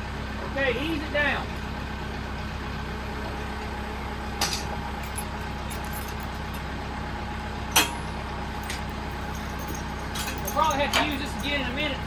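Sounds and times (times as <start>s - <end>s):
tractor engine idling: 0.0s - 12.0s
metal chain clinking: 5.0s - 6.6s, 8.6s - 12.0s.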